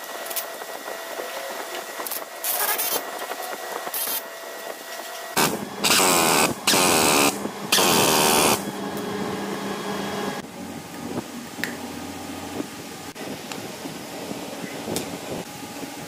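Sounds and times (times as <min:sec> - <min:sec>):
steady hum: 0:03.1 - 0:16.0
tool hissing bursts: 0:05.4 - 0:08.8.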